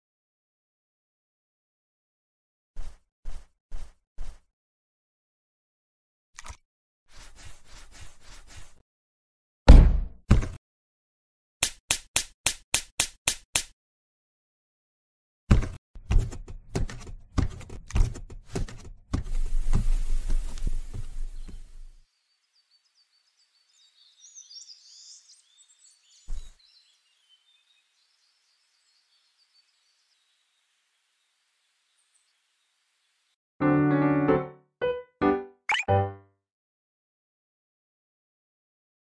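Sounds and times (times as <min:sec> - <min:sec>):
soft thud: 0:09.7 - 0:10.4
cartoon thumps and knocks: 0:09.7 - 0:10.6, 0:15.5 - 0:19.3
faint bird chirps: 0:21.2 - 0:33.4.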